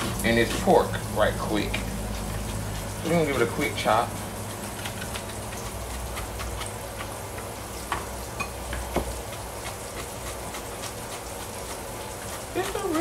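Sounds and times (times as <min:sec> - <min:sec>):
knife chopping on plastic board: 0:04.8 - 0:13.0.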